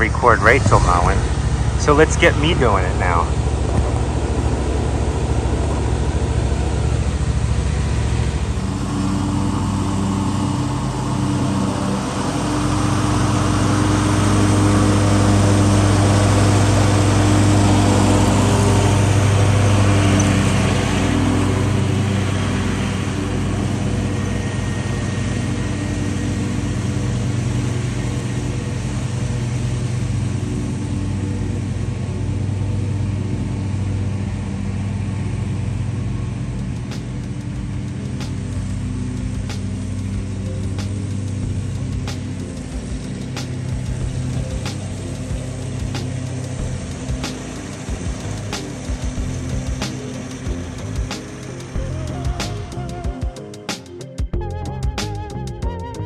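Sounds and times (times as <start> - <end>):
lawn mower engine running: 0.0 - 56.0.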